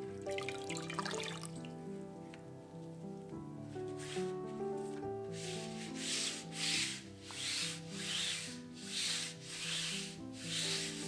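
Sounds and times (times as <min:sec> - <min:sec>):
soft background music: 0:00.0 - 0:11.0
cloth scrubbing metal surface: 0:05.3 - 0:11.0.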